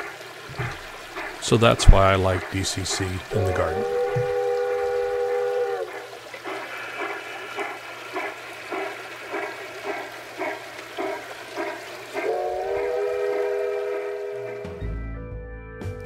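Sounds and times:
steam locomotive chuffing: 0:06.4 - 0:14.8
locomotive whistle blast: 0:12.2 - 0:15.0.

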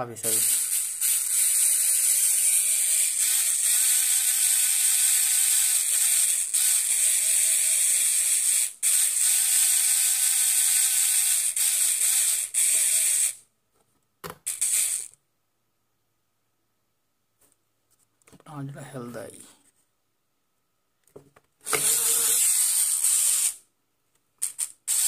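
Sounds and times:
small electric motor whirring: 0:00.2 - 0:13.4, 0:14.4 - 0:15.2, 0:21.6 - 0:23.6, 0:24.4 - 0:25.0.

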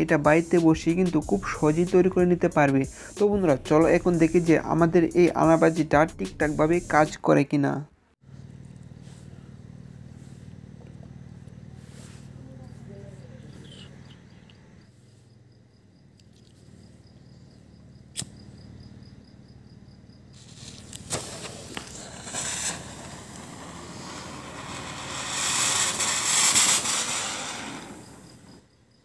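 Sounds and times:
crickets chirping: 0:08.4 - 0:29.0
firework hissing: 0:08.9 - 0:13.8, 0:17.6 - 0:18.6, 0:20.3 - 0:28.8
lighter clicks: 0:18.1 - 0:18.5.

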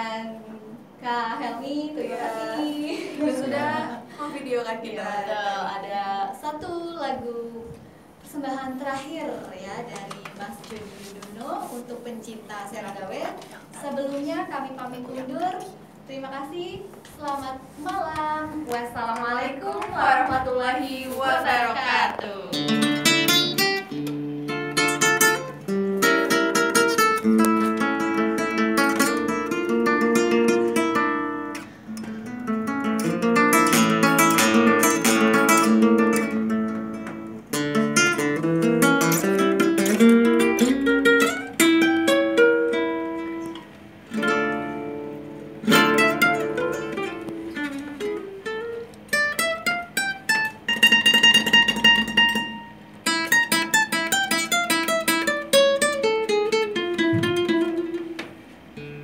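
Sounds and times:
fingerstyle acoustic guitar: 0:18.8 - 0:59.0.

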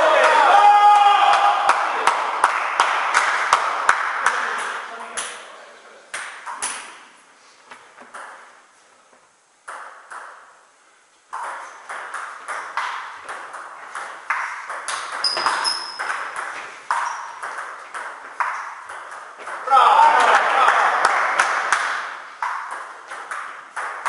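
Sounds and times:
table tennis ball bouncing: 0:08.0 - 0:08.5, 0:09.6 - 0:10.6, 0:11.3 - 0:24.0.

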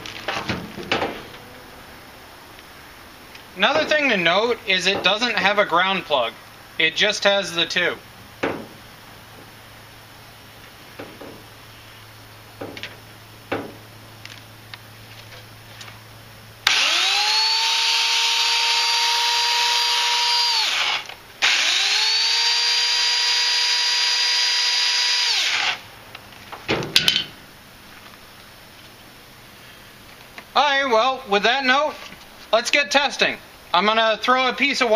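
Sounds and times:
electric chainsaw motor whining: 0:16.6 - 0:25.8.

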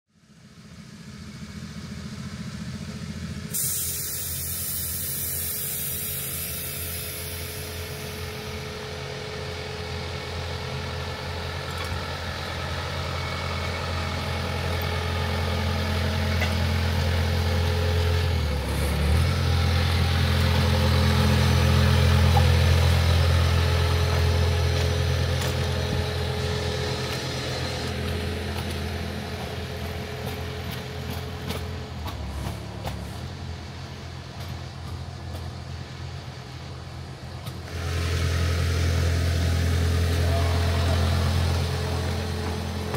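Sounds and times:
small locomotive engine running: 0:00.2 - 0:42.9
hiss: 0:03.5 - 0:09.1.

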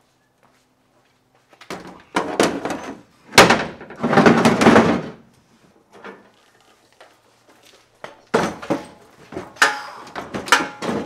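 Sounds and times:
metal frame knocking and clattering: 0:08.3 - 0:11.0.

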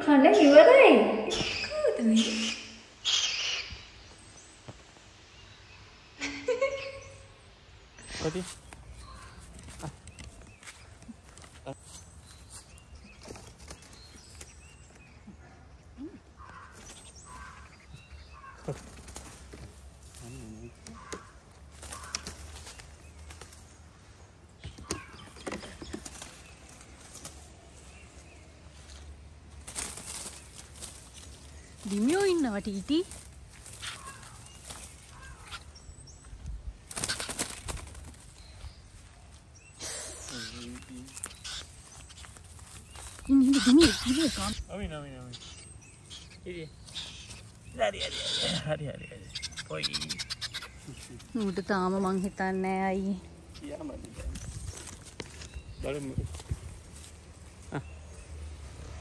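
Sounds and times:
bird chirps: 0:00.0 - 0:19.0, 0:30.1 - 0:56.2
bird flapping wings: 0:13.2 - 0:14.6, 0:18.6 - 0:19.9, 0:21.1 - 0:23.7, 0:24.8 - 0:27.6, 0:29.6 - 0:35.6, 0:36.8 - 0:38.4.

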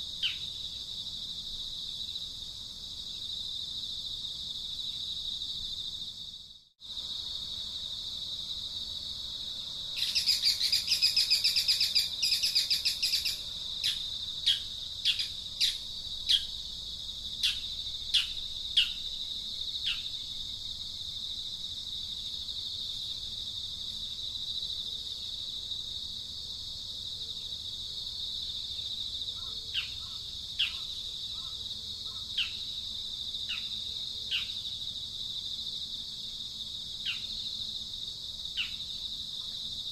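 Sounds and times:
high drone of insects: 0:00.0 - 0:39.9
bird calling: 0:10.0 - 0:16.5.

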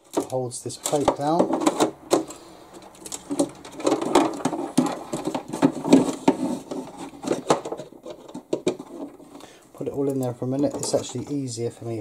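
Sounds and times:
small clicks and knocks in plastic hull: 0:00.0 - 0:09.4.

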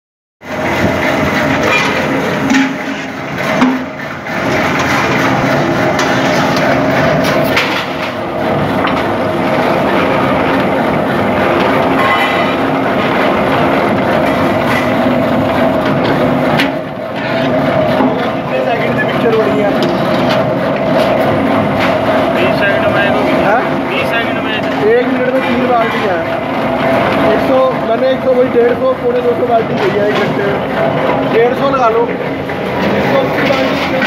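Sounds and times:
bucket seaming machine running: 0:00.4 - 0:34.0
sharp metal knocks: 0:11.6 - 0:15.1.

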